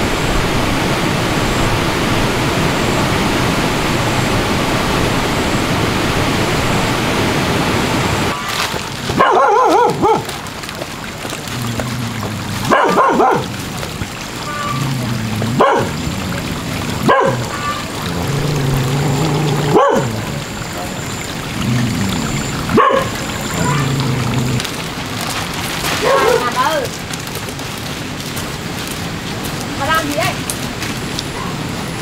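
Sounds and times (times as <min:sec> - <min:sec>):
steady rushing noise: 0:00.0 - 0:08.4
dog barking: 0:09.1 - 0:10.3, 0:12.7 - 0:13.5, 0:15.5 - 0:16.0, 0:17.0 - 0:17.9, 0:19.7 - 0:20.2, 0:22.7 - 0:23.8, 0:26.0 - 0:26.6.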